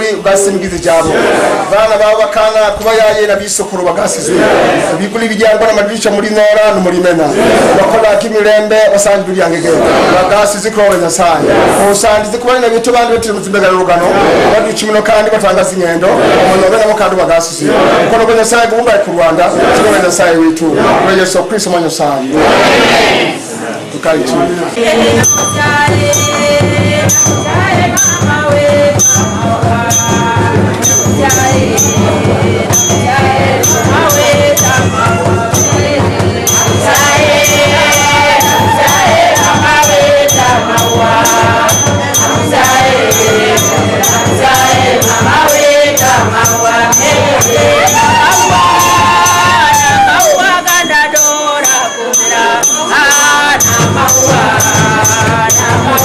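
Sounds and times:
percussion beat: 0.0s - 21.1s, 24.8s - 56.0s
congregation singing: 0.0s - 56.0s.

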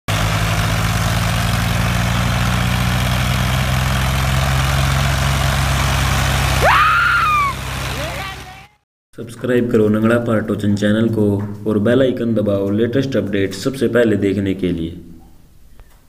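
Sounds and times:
tractor diesel engine idling: 0.1s - 8.8s.

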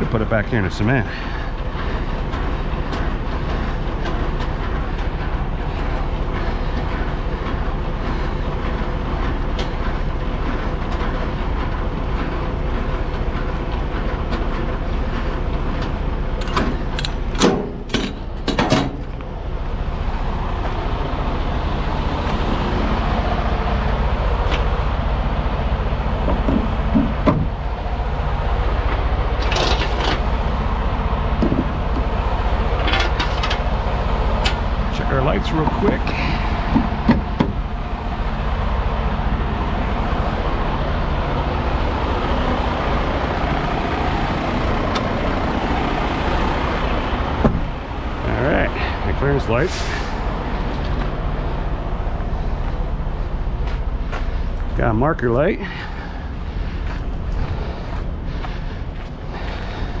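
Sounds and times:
diesel truck engine idling: 0.0s - 60.0s
sharp knocks: 26.2s - 27.6s, 36.7s - 37.6s.

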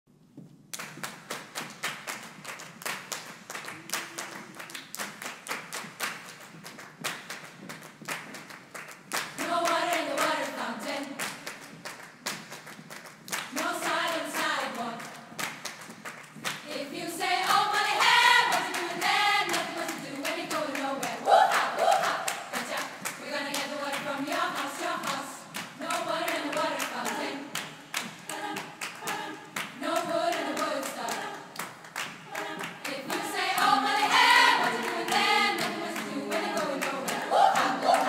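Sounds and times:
rhythmic hand clapping: 0.7s - 38.0s
women singing: 9.3s - 11.4s, 13.4s - 15.4s, 16.6s - 38.0s.

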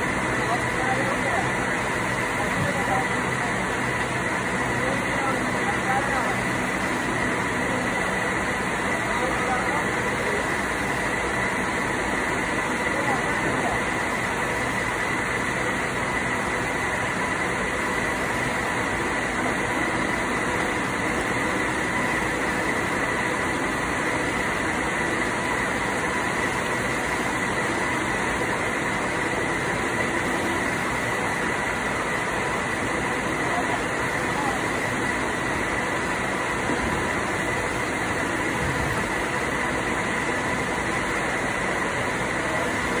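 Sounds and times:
machinery with high whine: 0.0s - 43.0s.

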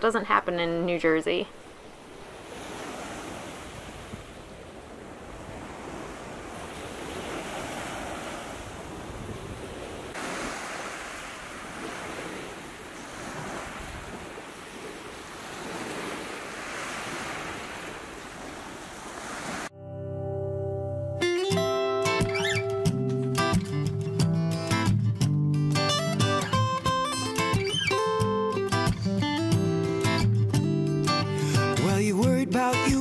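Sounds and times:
small waves breaking on sand: 1.5s - 19.7s
wind rumbling on microphone: 2.0s - 19.7s.

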